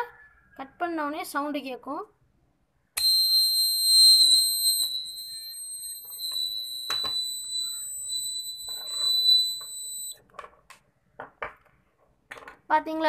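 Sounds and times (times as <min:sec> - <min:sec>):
high-pitched alarm buzzer: 0:03.0 - 0:10.2.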